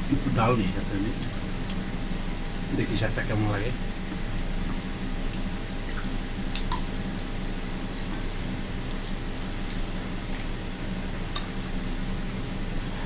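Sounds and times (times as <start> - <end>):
background hum: 0.0 - 13.0
wet squishing of rice: 4.1 - 13.0.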